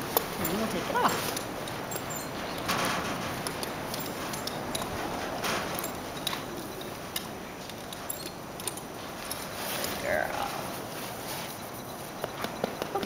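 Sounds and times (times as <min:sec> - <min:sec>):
bridle bit and buckles clinking: 0:00.0 - 0:10.1
rustling: 0:00.0 - 0:12.7.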